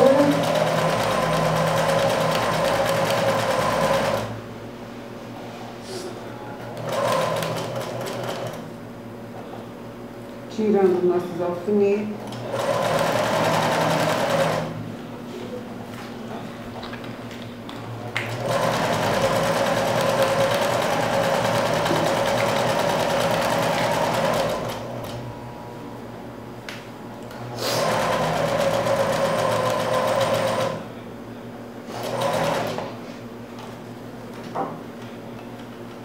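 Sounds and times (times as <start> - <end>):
electric sewing machine stitching: 0.0 - 4.3, 6.8 - 8.6, 12.3 - 14.7, 18.3 - 24.8, 27.7 - 30.8, 31.9 - 32.8.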